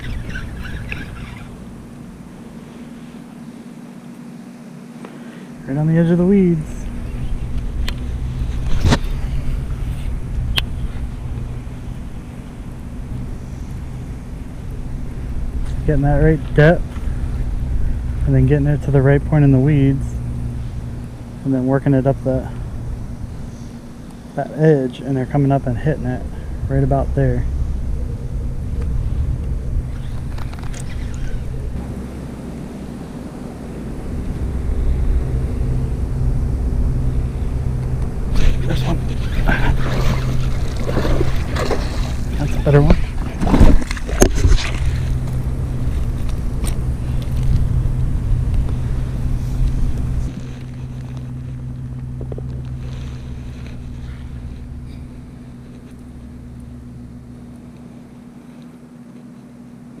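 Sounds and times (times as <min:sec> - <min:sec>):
faint hum: 0:00.0 - 1:00.0
heavy rumble on microphone: 0:05.1 - 1:00.0
wind buffeting microphone: 0:26.1 - 0:32.1.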